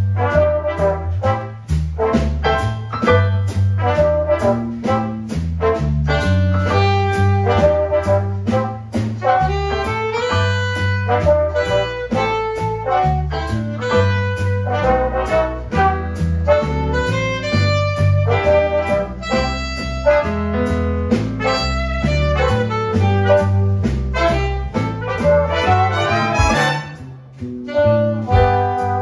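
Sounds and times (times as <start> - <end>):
bass line: 0.0 - 29.0
drums: 0.0 - 29.0
trombone: 0.0 - 29.0
trumpets: 0.0 - 29.0
saxophone: 6.6 - 20.2, 21.4 - 27.1, 27.7 - 29.0.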